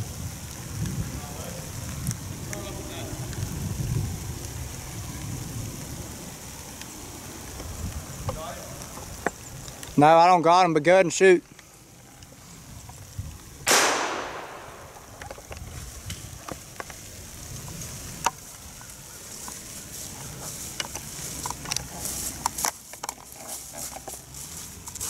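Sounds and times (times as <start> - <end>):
footsteps in dry leaves: 10.9 - 25.0
gunshot echoing: 13.7 - 15.2.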